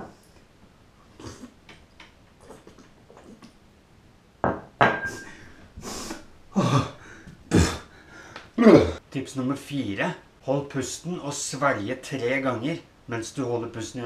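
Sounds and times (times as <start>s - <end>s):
glass set down on tile: 4.4s - 5.3s.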